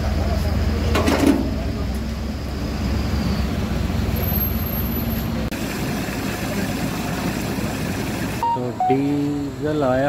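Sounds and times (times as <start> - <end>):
fuel pump running: 5.5 - 8.4
short high tone: 8.4 - 9.3.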